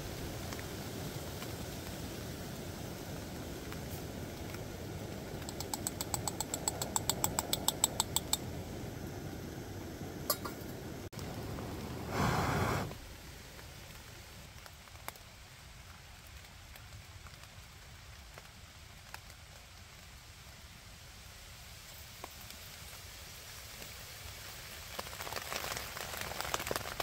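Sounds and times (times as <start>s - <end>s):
light rain hissing and pattering: 0.0s - 27.0s
light metal taps: 5.4s - 8.5s
short rushing burst: 12.0s - 13.0s.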